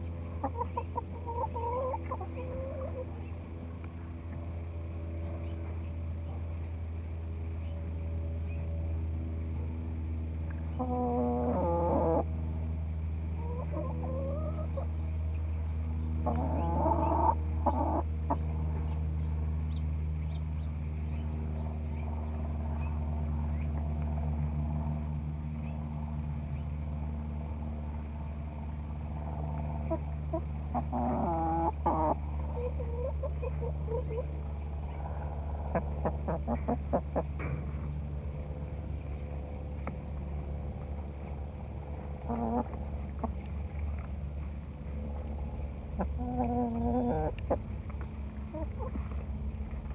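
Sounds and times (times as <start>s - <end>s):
hens clucking: 0.0s - 3.4s, 10.7s - 12.3s, 13.4s - 15.0s, 16.2s - 18.5s, 29.6s - 37.9s, 42.1s - 44.1s, 46.0s - 49.3s
steady low hum: 0.0s - 49.9s.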